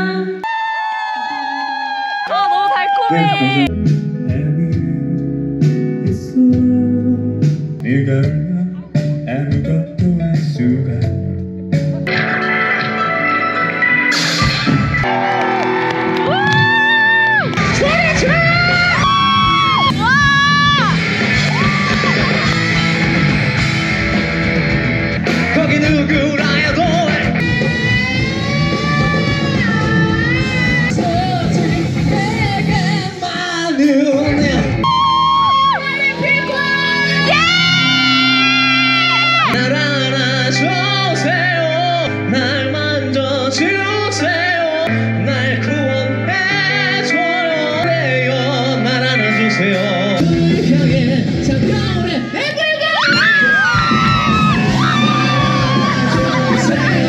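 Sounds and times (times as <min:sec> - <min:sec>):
person singing: 0:01.2 - 0:12.1, 0:25.4 - 0:57.0
live rock band playing: 0:02.8 - 0:57.0
singer holding long notes: 0:53.2 - 0:57.0.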